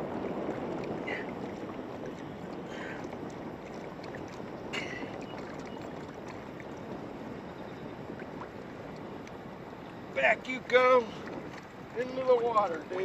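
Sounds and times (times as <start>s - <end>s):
water rushing around boat: 0.0s - 13.0s.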